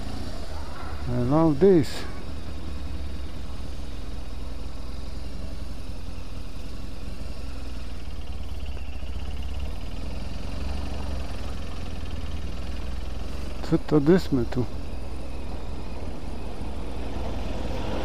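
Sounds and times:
motorcycle engine running: 0:00.0 - 0:18.0.

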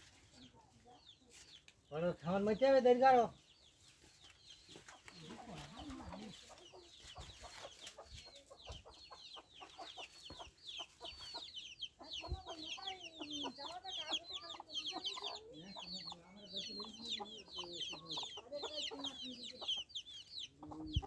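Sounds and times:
chickens clucking: 0:00.0 - 0:21.0.

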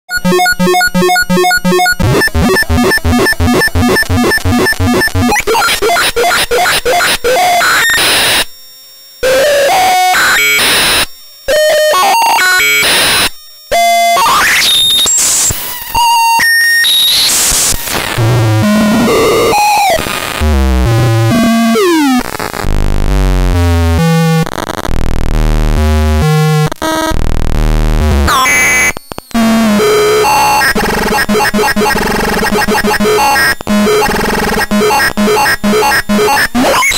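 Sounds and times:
harsh synthesizer noise: 0:00.1 - 0:08.4, 0:17.5 - 0:36.9.

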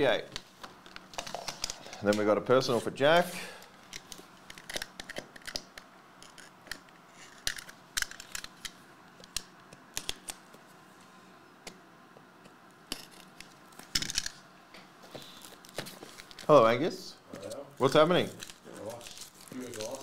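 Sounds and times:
plastic wrap crinkling: 0:15.2 - 0:16.6, 0:17.4 - 0:20.0.

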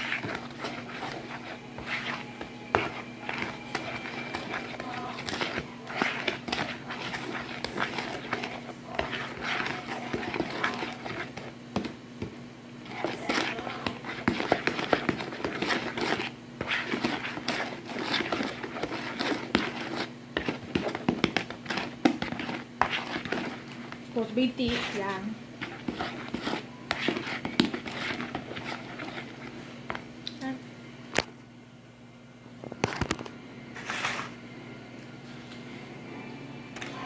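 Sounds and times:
utensil scraping plastic bowl: 0:00.0 - 0:11.9, 0:12.8 - 0:29.6
low steady hum: 0:00.0 - 0:37.0.

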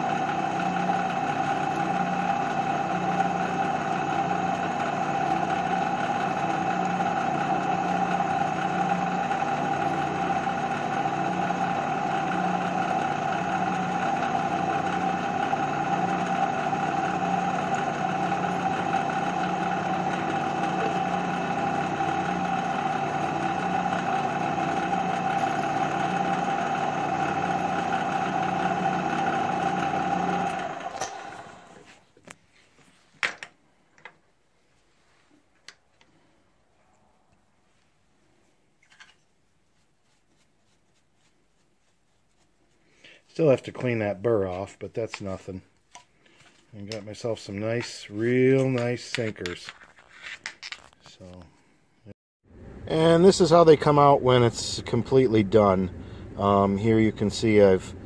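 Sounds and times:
drill press whining: 0:00.0 - 0:32.0.

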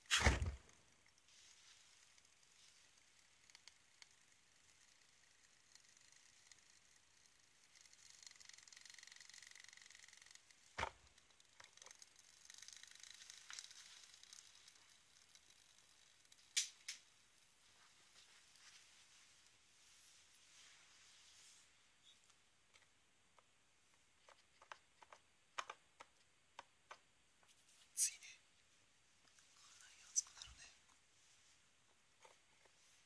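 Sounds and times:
alcohol stove hissing: 0:00.0 - 0:18.4.

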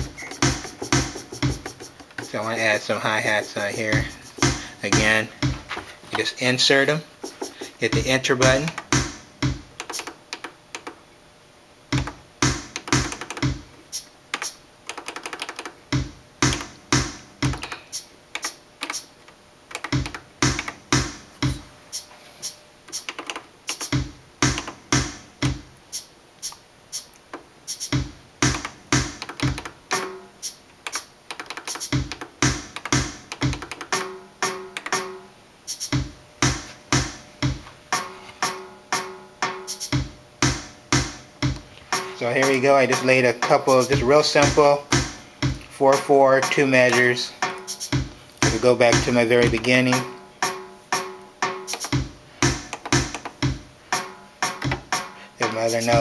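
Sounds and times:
kick drum: 0:00.0 - 0:01.7, 0:04.0 - 0:05.7, 0:08.0 - 0:09.7, 0:12.0 - 0:13.6, 0:15.9 - 0:17.6, 0:23.9 - 0:25.7, 0:28.0 - 0:29.6, 0:32.0 - 0:33.6, 0:36.0 - 0:37.6, 0:39.9 - 0:41.6, 0:43.9 - 0:45.6, 0:48.0 - 0:49.6, 0:51.9 - 0:53.6, 0:54.6 - 0:54.9
hi-hat ticks: 0:00.0 - 0:05.5, 0:07.2 - 0:10.9, 0:11.9 - 0:14.6, 0:15.9 - 0:19.1, 0:19.7 - 0:56.0.

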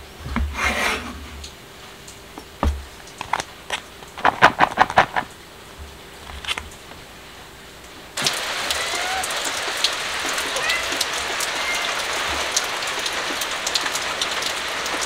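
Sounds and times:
steady rain: 0:00.0 - 0:15.0
thud: 0:02.6 - 0:02.9.

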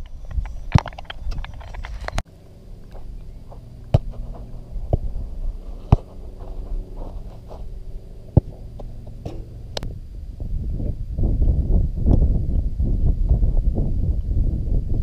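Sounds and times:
steady low rumble: 0:00.0 - 0:15.0
boot kicking football: 0:03.0 - 0:09.8.

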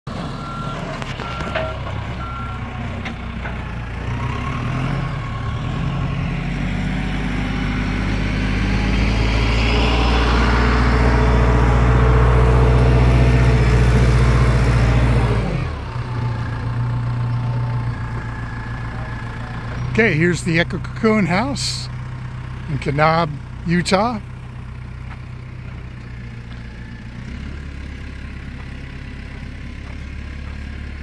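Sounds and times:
forklift engine running: 0:00.1 - 0:31.0
reversing beep: 0:00.4 - 0:02.7.

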